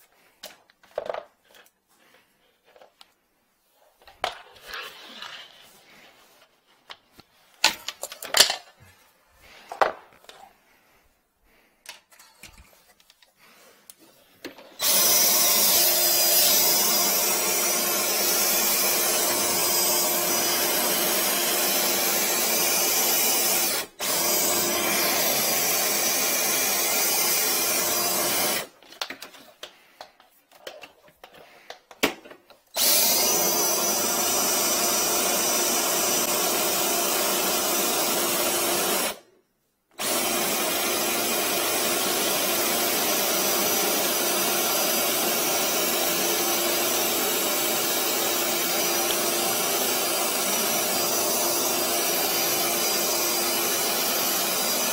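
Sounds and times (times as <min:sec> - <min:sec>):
cable handling clicks and knocks: 0:06.9 - 0:08.9, 0:11.8 - 0:14.8, 0:28.8 - 0:32.7
drain-cleaning machine running: 0:14.8 - 0:28.7.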